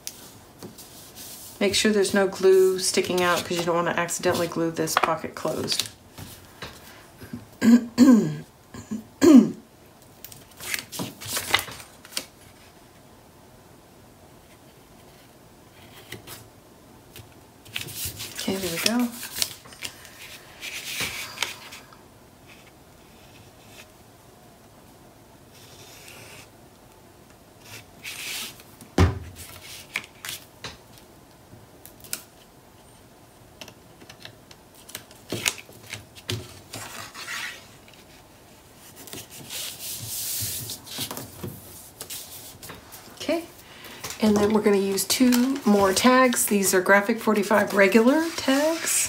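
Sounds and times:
paper sliding and rustling: 34.8s - 43.2s, 44.0s - 49.0s
stylus rubbing on paper: 47.8s - 49.0s.

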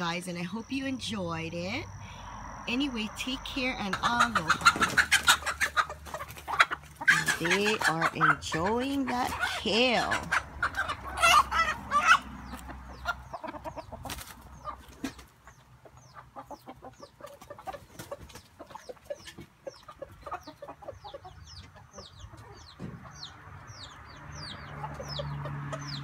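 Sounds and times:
chickens clucking: 2.6s - 26.0s
loud chicken call: 4.0s - 13.9s
chicken pecking leaves: 4.2s - 15.4s.

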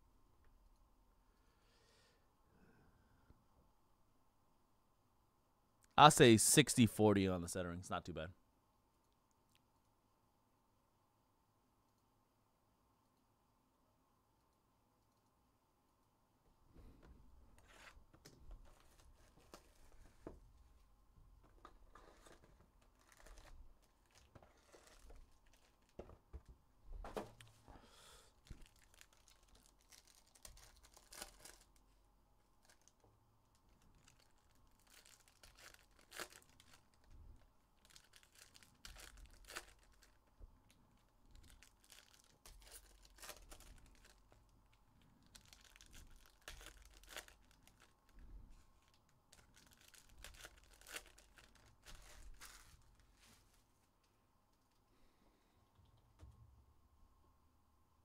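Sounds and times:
cards rustling: 21.9s - 26.0s, 28.5s - 31.8s
foil wrappers tearing: 22.1s - 26.0s, 28.6s - 31.8s, 33.9s - 37.1s, 37.8s - 40.2s, 41.3s - 44.2s, 45.3s - 47.9s, 48.9s - 52.9s.

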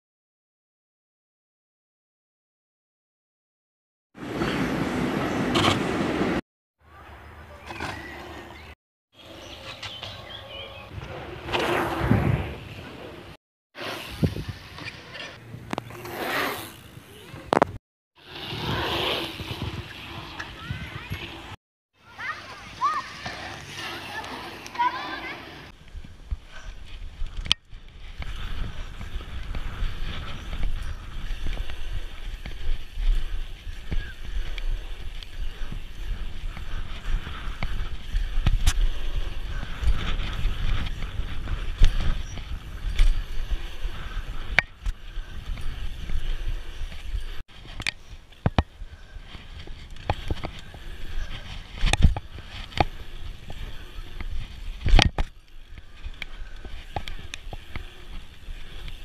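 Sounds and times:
bicycle tyre rumble on asphalt: 4.2s - 6.4s, 7.8s - 59.0s
tyres rolling on asphalt: 4.2s - 6.4s, 18.2s - 26.2s
wind buffeting microphone: 14.0s - 14.8s, 25.7s - 47.4s
bike clicks: 25.8s - 59.0s.

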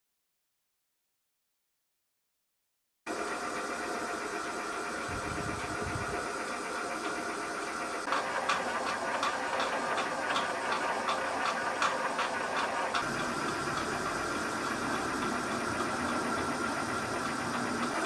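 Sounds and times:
lathe motor whine: 3.1s - 18.0s
regular ticking: 7.0s - 18.0s.

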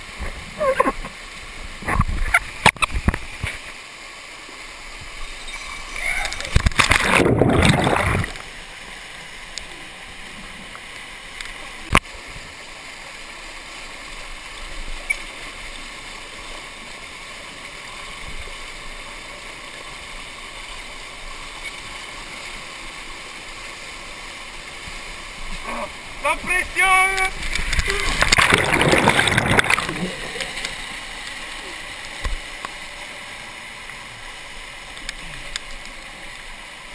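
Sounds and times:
stream rushing down cascade: 0.0s - 36.9s
loud splash: 6.5s - 8.4s, 27.3s - 30.6s.

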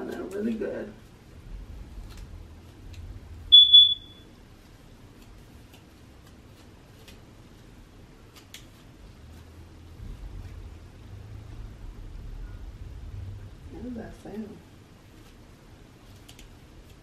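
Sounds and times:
smoke alarm chirp: 3.5s - 4.3s.

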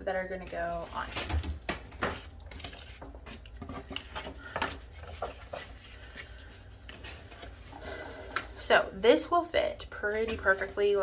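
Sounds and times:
paper rustling and sliding: 2.1s - 8.1s.

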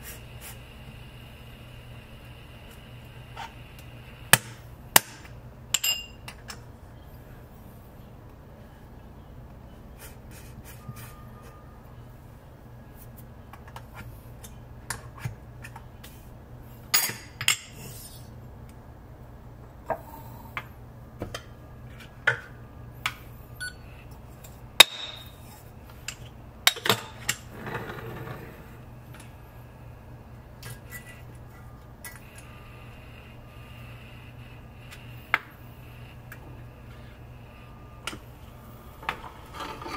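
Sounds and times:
scratchy scraping: 27.5s - 28.8s.

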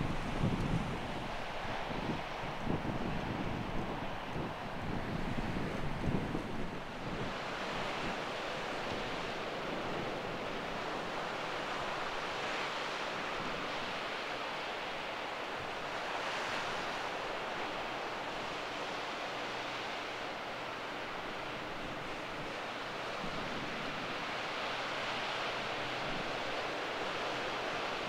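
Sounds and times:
wind buffeting microphone: 0.0s - 12.2s.

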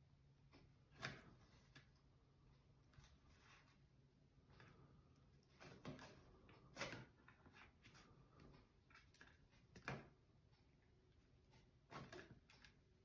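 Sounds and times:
faint paper rustles: 2.9s - 10.0s.

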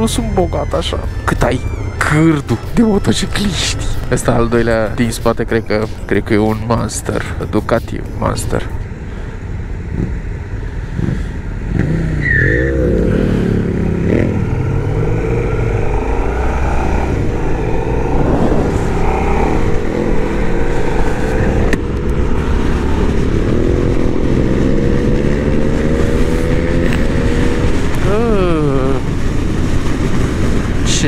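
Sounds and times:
motorcycle engine accelerating: 9.8s - 31.0s.

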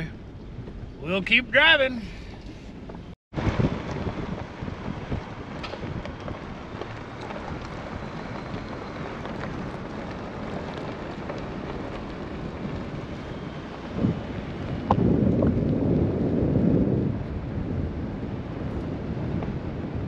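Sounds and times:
tyre and road noise: 0.0s - 20.0s
wind on microphone: 2.1s - 20.0s.

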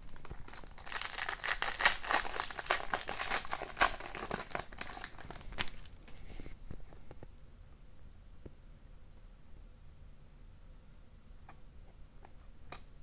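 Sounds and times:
foil wrapper crinkling and tearing: 0.0s - 6.0s.

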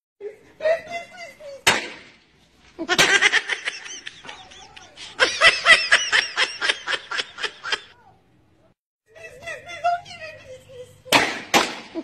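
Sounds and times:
person laughing: 2.8s - 8.0s.

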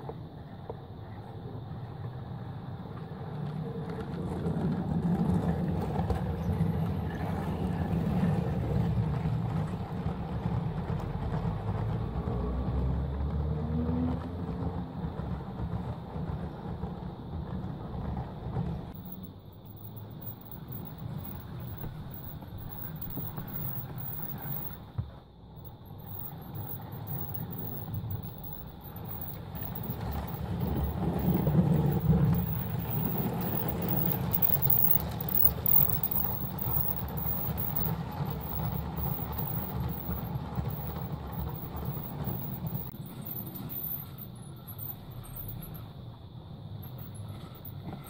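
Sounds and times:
toy train rumbling on track: 0.0s - 48.0s.

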